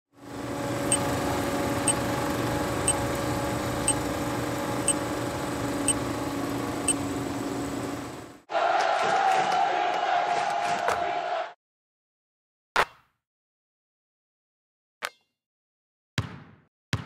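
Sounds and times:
film projector whirring: 0.2s - 8.5s.

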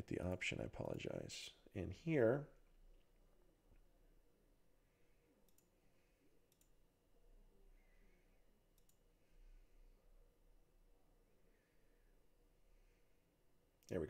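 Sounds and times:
computer mouse clicks: 5.4s - 5.7s, 6.5s - 6.8s, 8.8s - 9.0s.

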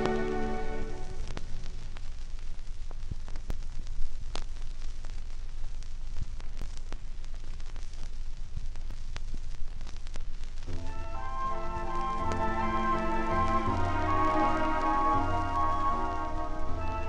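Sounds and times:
vinyl clicks and pops: 0.0s - 12.7s
vinyl record surface hiss: 0.0s - 17.0s.

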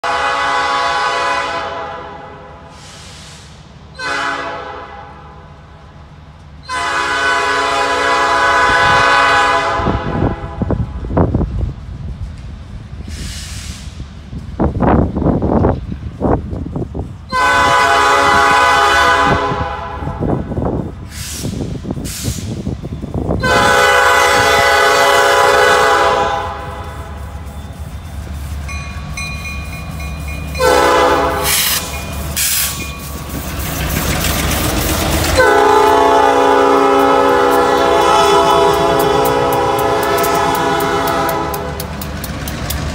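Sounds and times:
locomotive air horn blasts: 0.0s - 3.3s, 3.9s - 5.4s, 6.7s - 11.0s, 17.3s - 21.4s, 23.4s - 27.2s, 30.6s - 32.8s, 35.3s - 41.9s
locomotive engines rumbling: 0.0s - 42.9s
train wheels clattering on rails: 26.6s - 42.9s.

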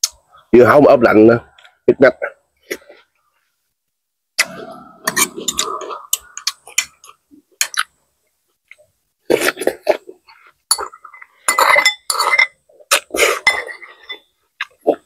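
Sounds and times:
dishes and utensils clinking: 4.4s - 7.0s, 10.7s - 12.6s, 13.2s - 14.3s.

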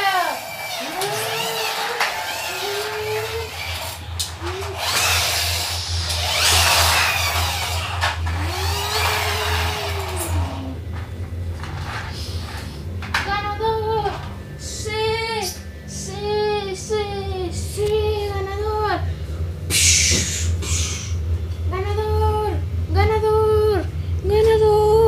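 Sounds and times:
children making engine noises: 0.0s - 10.8s.

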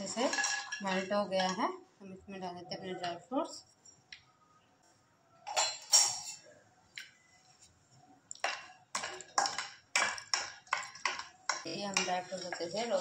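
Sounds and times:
kitchenware clattering: 0.0s - 1.7s, 5.5s - 6.4s, 8.4s - 13.0s
wooden spoon scraping a pan: 9.0s - 13.0s.

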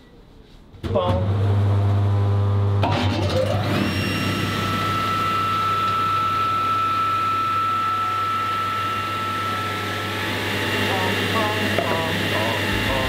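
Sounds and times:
table saw motor hum: 3.5s - 13.0s
saw blade whining through wood: 3.6s - 13.0s.

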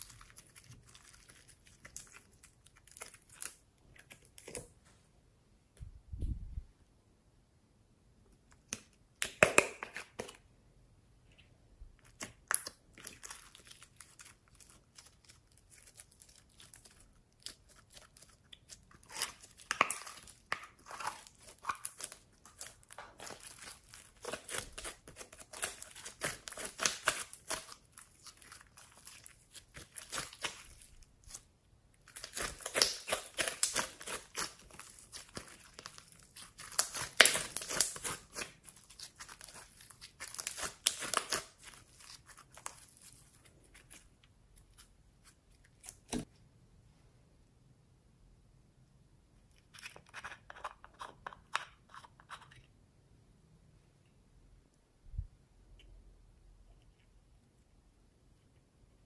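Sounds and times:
slime crackling and popping: 12.1s - 31.4s, 32.0s - 44.0s.

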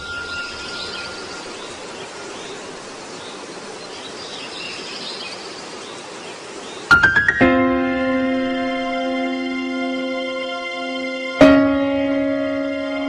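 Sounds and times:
piano music: 0.0s - 2.2s, 6.9s - 13.0s
faint high chirps: 0.0s - 3.2s
ambient hiss: 0.0s - 13.0s.

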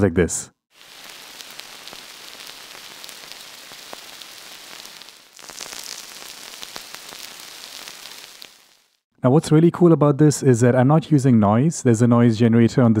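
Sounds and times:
synthesized rain hiss: 0.7s - 9.0s.

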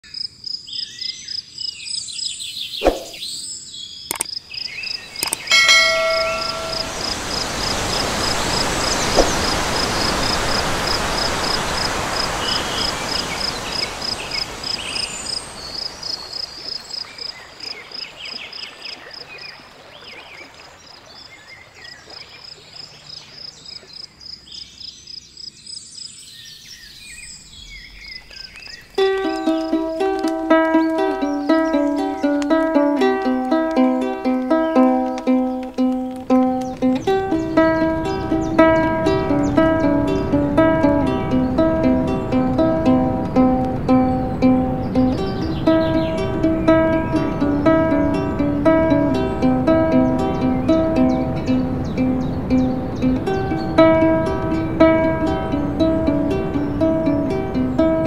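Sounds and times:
sharp clicks: 4.1s - 4.4s, 5.2s - 5.5s
stream flowing: 4.1s - 24.2s, 27.1s - 58.0s
short ringing tone: 5.5s - 7.1s
high pulsing call: 5.5s - 7.4s.

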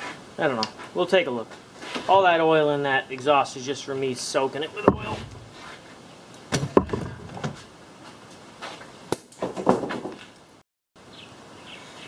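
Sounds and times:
quiet rustling: 3.2s - 6.1s
objects knocking on workbench: 4.8s - 5.6s, 6.5s - 7.6s.

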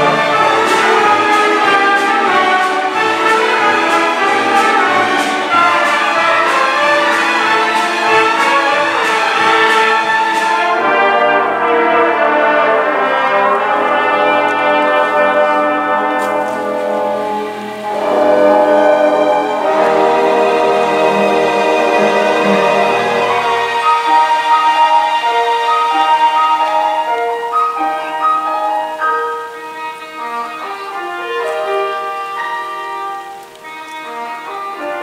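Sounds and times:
percussion strikes: 0.0s - 11.4s
brass instruments: 0.0s - 35.0s
symphony orchestra playing: 0.0s - 35.0s.

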